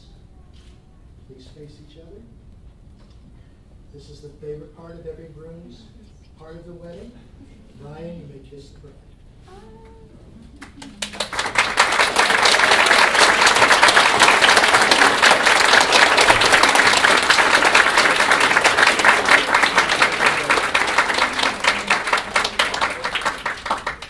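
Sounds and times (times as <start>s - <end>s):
people applauding: 10.6s - 24.0s.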